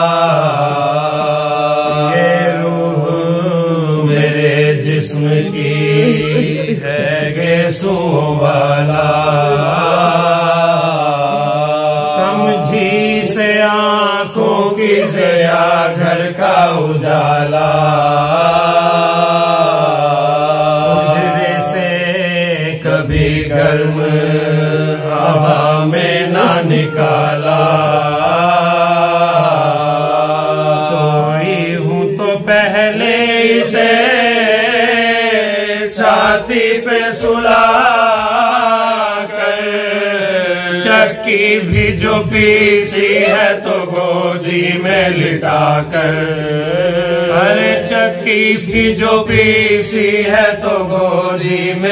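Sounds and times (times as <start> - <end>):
men holding low drone note: 0.0 - 51.9
man singing ornamented lines: 1.6 - 28.6, 40.9 - 44.0.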